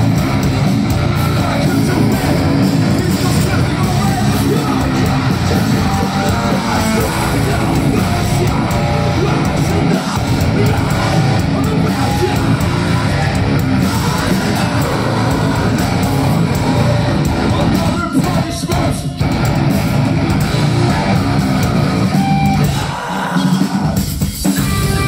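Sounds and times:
vocalist singing: 0:00.0 - 0:19.4, 0:20.4 - 0:25.0
bass guitar: 0:00.0 - 0:23.0, 0:23.7 - 0:25.0
distorted electric guitars: 0:00.0 - 0:25.0
drums: 0:00.0 - 0:25.0.

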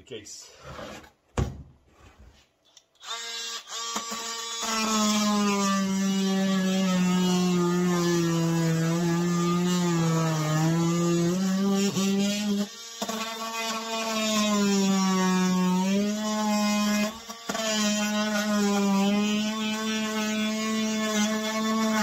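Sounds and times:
oscillating multi-tool cutting plastic: 0:03.0 - 0:22.0.

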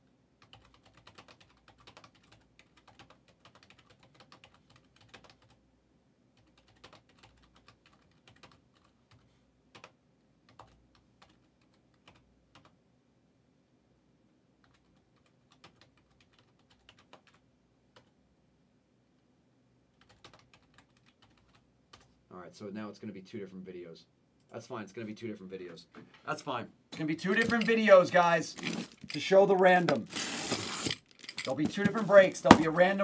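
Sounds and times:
typing on computer keyboard: 0:00.4 - 0:05.6, 0:06.4 - 0:12.8, 0:14.6 - 0:18.1, 0:20.0 - 0:22.1.

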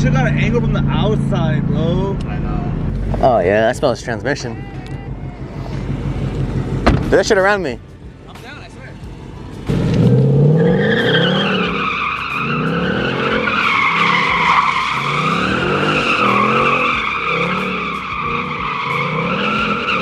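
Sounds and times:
car engine revving: 0:00.0 - 0:20.0
tyres squealing: 0:10.2 - 0:20.0.

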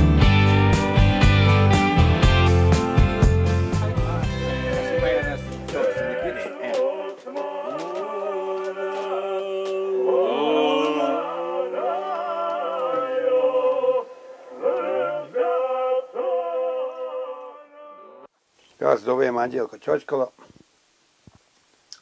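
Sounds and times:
voices singing unaccompanied: 0:03.6 - 0:18.3.

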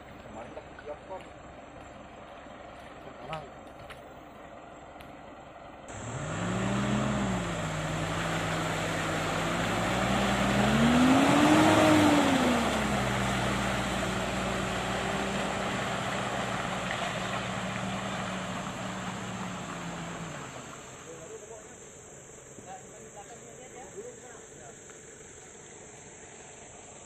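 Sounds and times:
tyres churning mud: 0:05.9 - 0:21.5
pickup engine revving: 0:05.9 - 0:22.5.

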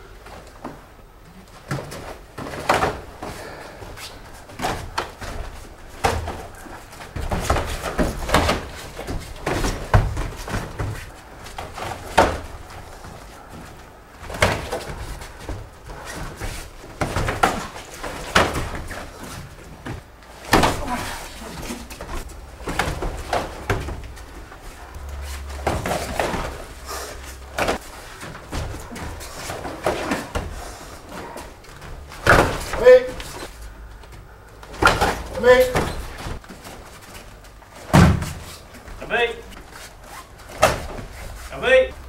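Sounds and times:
feet stamping and sliding on mats: 0:00.2 - 0:42.0
punches and kicks landing: 0:04.5 - 0:13.0, 0:14.2 - 0:30.6, 0:34.7 - 0:36.6, 0:37.8 - 0:38.5.

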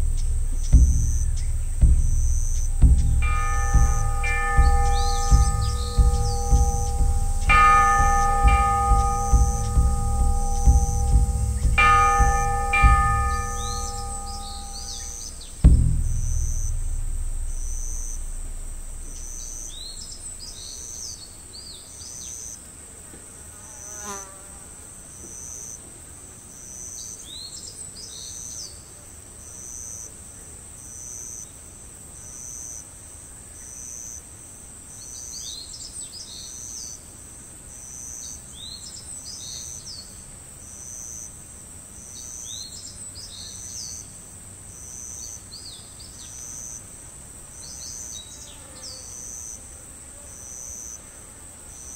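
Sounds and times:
insects buzzing: 0:00.0 - 0:21.2
birds chirping: 0:00.0 - 0:21.3
pulsing high note: 0:00.0 - 0:21.4.

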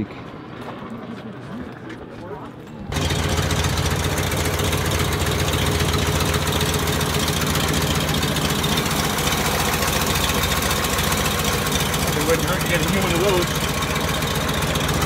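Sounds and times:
car engine idling: 0:02.9 - 0:15.0.

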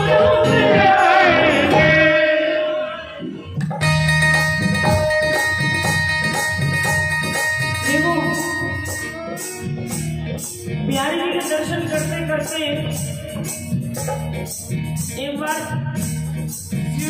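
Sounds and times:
hand drum beat: 0:03.6 - 0:14.6
held instrumental notes: 0:03.8 - 0:15.4.

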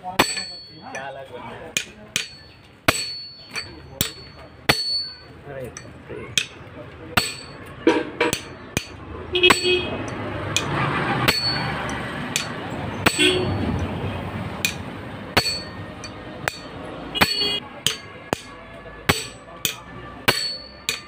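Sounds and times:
hammer striking steel tool: 0:00.1 - 0:01.1, 0:01.7 - 0:13.9, 0:14.6 - 0:21.0.

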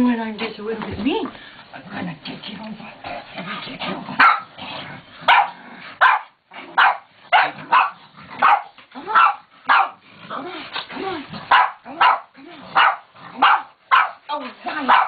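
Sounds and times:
dog barking: 0:04.2 - 0:04.5, 0:05.3 - 0:10.0, 0:11.5 - 0:14.2, 0:14.8 - 0:15.0.

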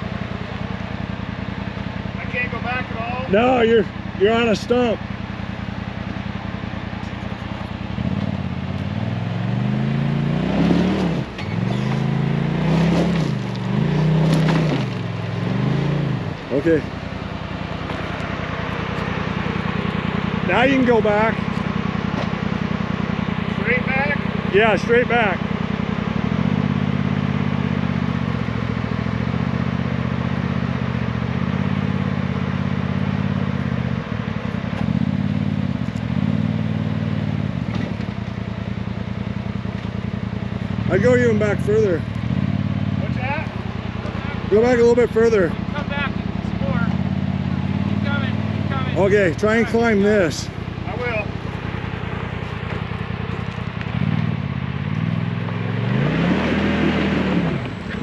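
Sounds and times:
engine revving hard: 0:07.9 - 0:16.9, 0:23.5 - 0:34.0, 0:40.8 - 0:52.0, 0:53.4 - 0:58.0
tyres spinning in dirt: 0:10.6 - 0:15.7.

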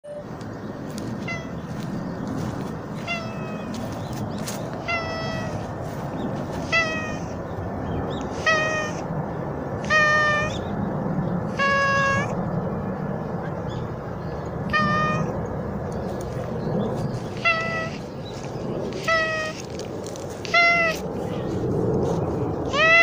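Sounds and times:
cat meowing: 0:01.2 - 0:01.6, 0:03.0 - 0:03.8, 0:04.8 - 0:05.6, 0:06.6 - 0:07.4, 0:08.3 - 0:09.1, 0:09.8 - 0:10.6, 0:11.5 - 0:12.4, 0:14.7 - 0:15.4, 0:17.3 - 0:18.1, 0:18.9 - 0:19.8, 0:20.4 - 0:21.5, 0:22.7 - 0:23.0.

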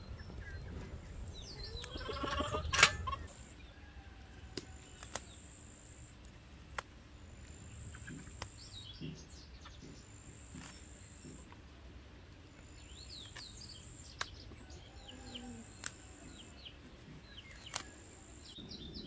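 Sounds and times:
bird chirps: 0:00.0 - 0:03.7, 0:07.3 - 0:11.5, 0:12.6 - 0:19.0
animal bleating: 0:01.8 - 0:03.3.

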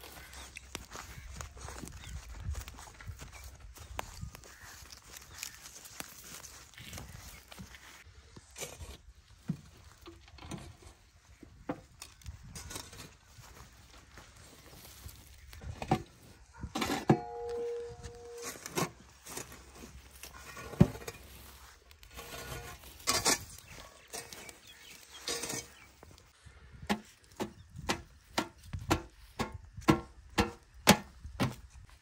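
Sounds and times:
spade scraping through ash: 0:16.7 - 0:26.0
spade knocking on metal tin: 0:26.9 - 0:31.0.

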